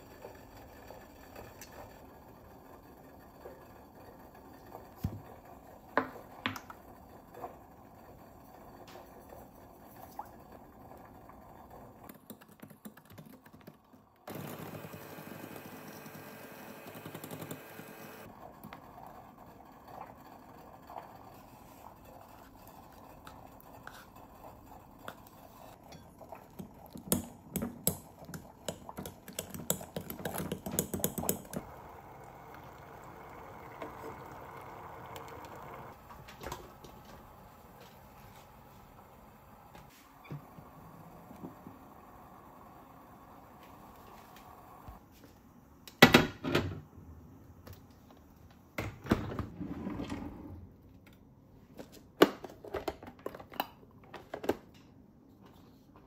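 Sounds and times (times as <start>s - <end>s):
electric hand mixer running: 14.3s - 18.3s, 31.0s - 36.0s.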